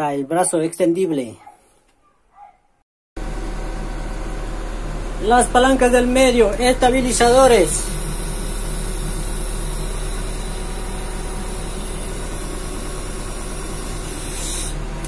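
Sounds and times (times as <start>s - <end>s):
diesel engine running: 3.2s - 15.0s.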